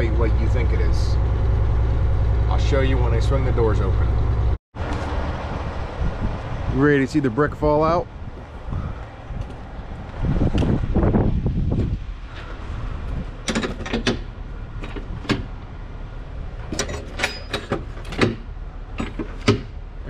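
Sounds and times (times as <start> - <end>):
loud low rumble: 0.0 - 4.6
metal lock handles clanking: 13.3 - 15.6, 16.6 - 19.8.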